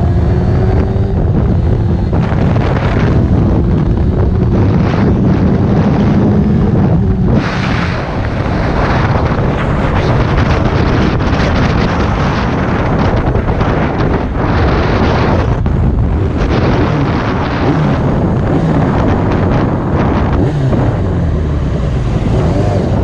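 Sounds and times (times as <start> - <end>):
motorcycle engine hum: 0.0 - 23.0
wind rushing over microphone: 0.0 - 23.0.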